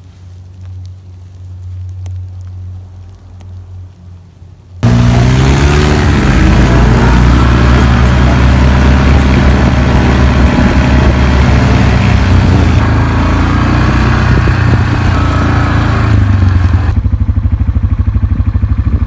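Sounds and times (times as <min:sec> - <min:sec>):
tyres on gravel: 0:00.0 - 0:17.1
vehicle engine driving: 0:04.7 - 0:19.0
engine idling: 0:14.7 - 0:19.0.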